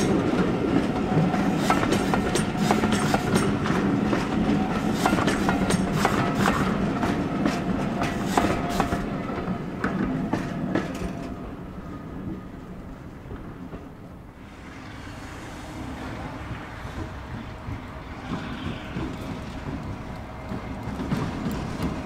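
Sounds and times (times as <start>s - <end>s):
wheels clicking over rail joints: 0.0s - 11.5s, 16.5s - 22.0s
train rumble: 0.0s - 22.0s.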